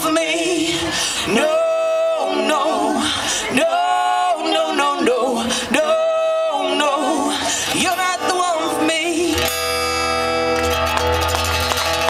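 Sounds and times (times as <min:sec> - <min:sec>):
woman singing long notes: 0:00.0 - 0:09.5.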